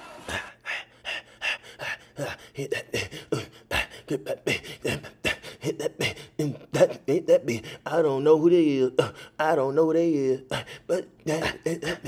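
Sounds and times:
person beatboxing: 0:10.5 - 0:12.0.

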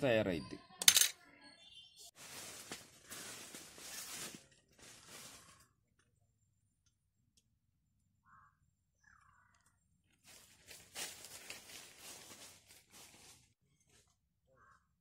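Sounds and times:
rough rustling: 0:02.2 - 0:05.7, 0:10.2 - 0:13.6.

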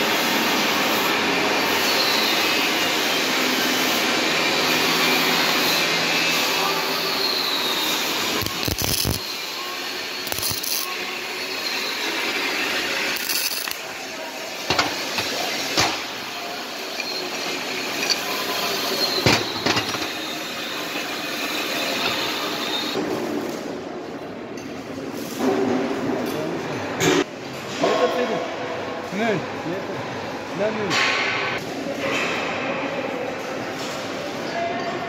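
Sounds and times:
machinery hum: 0:02.2 - 0:24.3.

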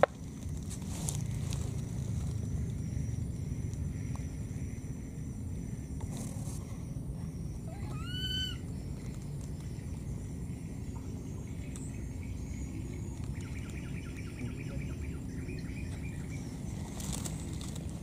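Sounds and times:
chirping trill: 0:02.4 - 0:18.0.

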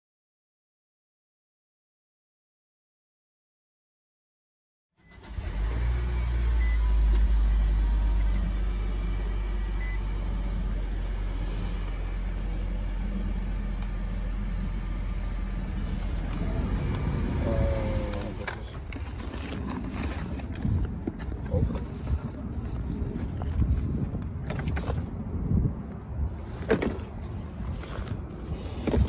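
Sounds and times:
car engine idling from inside: 0:06.4 - 0:18.9.

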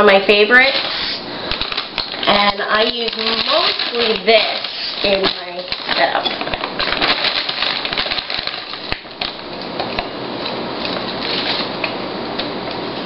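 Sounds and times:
plastic bag crinkling: 0:00.1 - 0:09.8.

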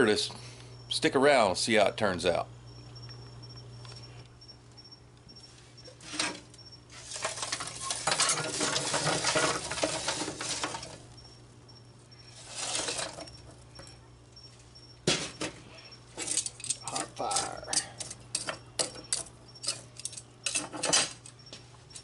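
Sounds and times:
charcoal briquettes clattering: 0:05.8 - 0:22.0.

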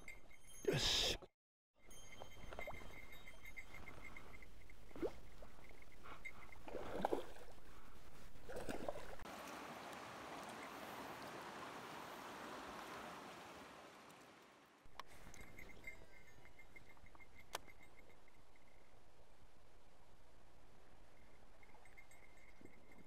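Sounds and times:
rushing water: 0:08.5 - 0:14.8.

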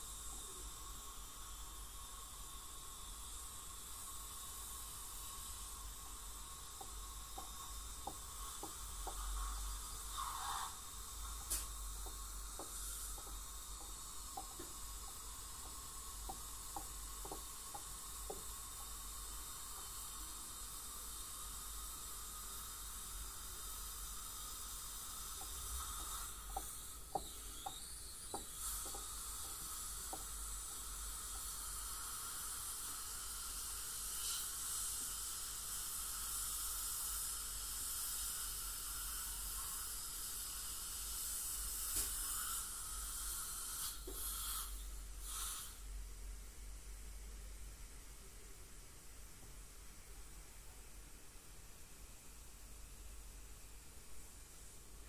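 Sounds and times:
dental water spray and suction: 0:00.0 - 0:45.8
instruments clicking against teeth: 0:06.2 - 0:19.0, 0:24.5 - 0:32.5.

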